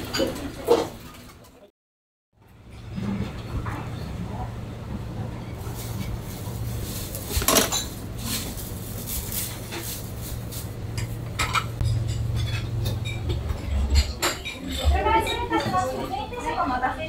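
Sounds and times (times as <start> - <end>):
plates and cutlery clinking: 0.0 - 1.6, 5.4 - 8.5, 10.9 - 16.4.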